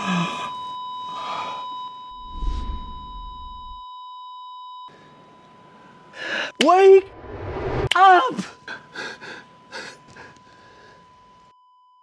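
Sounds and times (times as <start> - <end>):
continuous high electronic beep: 0.1 - 5.8
low rumble with whoosh: 2.1 - 3.8, 7.0 - 7.9.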